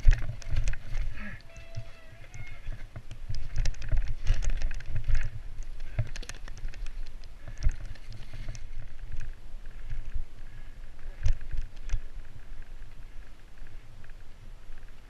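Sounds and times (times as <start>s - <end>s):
bike tyres clattering on stones: 0.0s - 10.2s
bike shaking rumble: 0.0s - 15.0s
wind on microphone: 0.0s - 15.0s.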